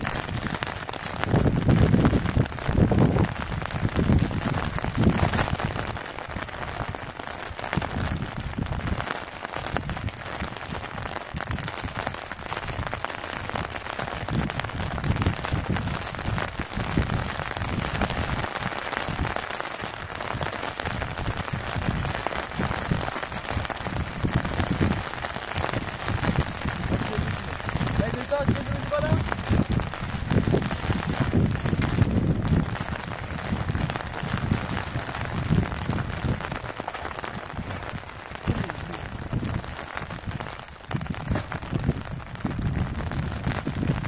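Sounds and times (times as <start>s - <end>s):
steady rain: 0.0s - 44.0s
low rumbles: 21.0s - 44.0s.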